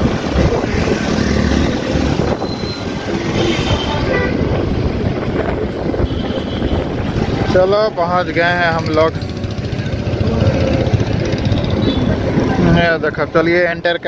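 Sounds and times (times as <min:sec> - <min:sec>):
wind buffeting microphone: 0:00.0 - 0:08.0
tyres rumbling on road: 0:00.0 - 0:14.0
scooter engine running: 0:08.5 - 0:12.2.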